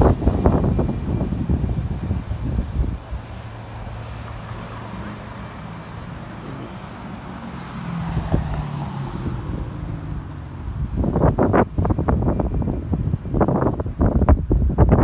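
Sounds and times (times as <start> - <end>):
bus diesel engine humming: 0.0 - 14.8
street traffic: 0.0 - 15.0.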